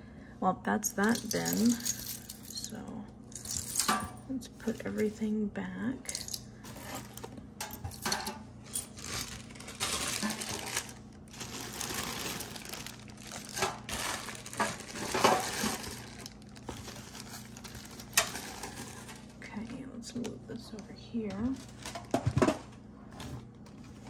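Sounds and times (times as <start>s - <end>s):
metal jewelry clinking: 1.0s - 4.2s, 6.1s - 6.4s
plastic zip bags crinkling: 8.6s - 19.4s, 21.5s - 22.4s.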